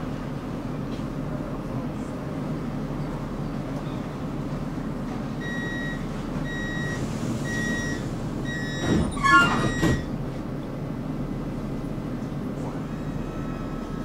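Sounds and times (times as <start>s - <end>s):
tram rumble: 0.0s - 14.0s
high warning beeps: 5.4s - 10.1s.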